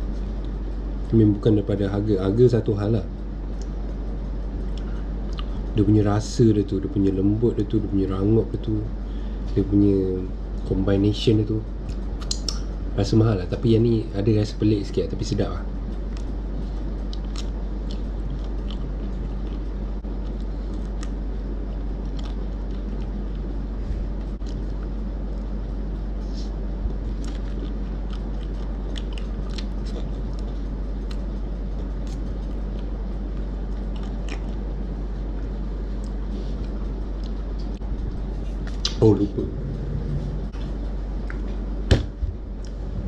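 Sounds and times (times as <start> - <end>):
steady low hum: 0.0 - 43.0
mouth clicks: 11.9 - 12.7
ice cream bar crunching: 16.0 - 25.9, 26.5 - 37.8.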